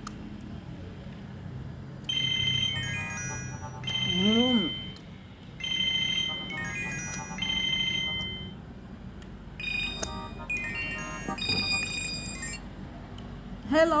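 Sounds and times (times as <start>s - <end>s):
phone ringtone melody: 2.1s - 5.0s, 5.6s - 8.8s, 9.6s - 12.7s.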